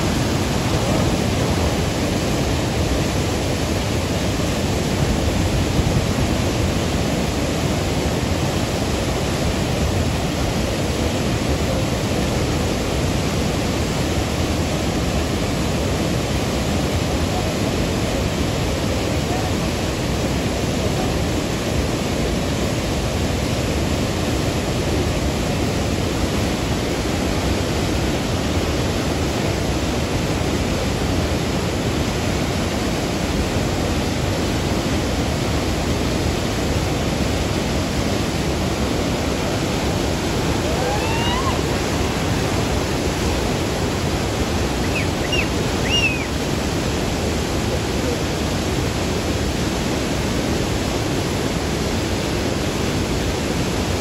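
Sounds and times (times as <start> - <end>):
waterfall roaring: 0.0 - 54.0
faint rising whistles: 44.8 - 46.3.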